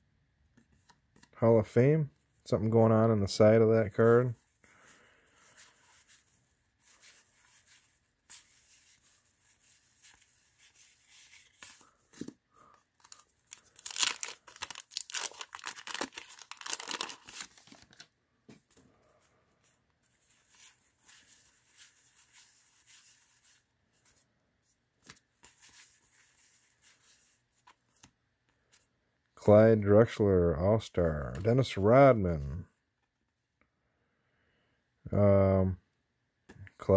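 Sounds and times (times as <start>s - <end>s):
wrapper and cards rustling: 2.2s - 24.3s, 25.0s - 28.9s
paper wrapper tearing: 12.9s - 18.1s.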